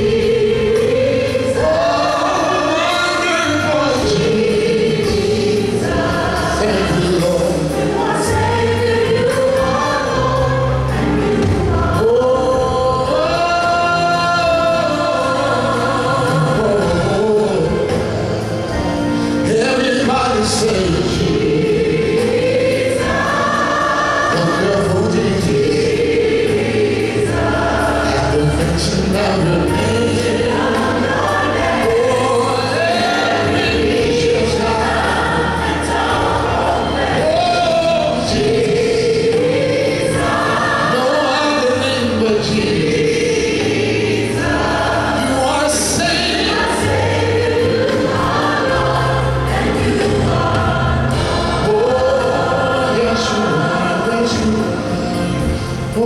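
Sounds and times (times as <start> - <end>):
gospel choir singing: 0.0 - 56.0.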